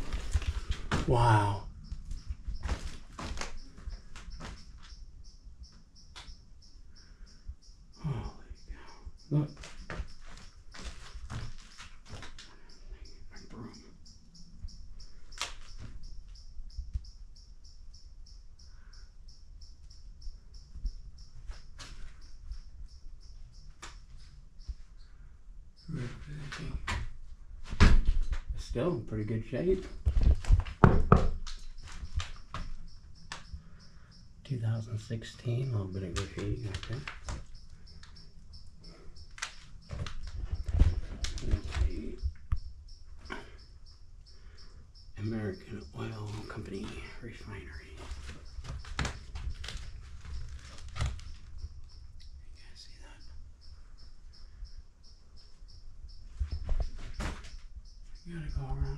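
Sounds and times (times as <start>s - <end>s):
cricket chirping: 0.0s - 58.9s
footsteps on wooden boards: 47.9s - 51.4s.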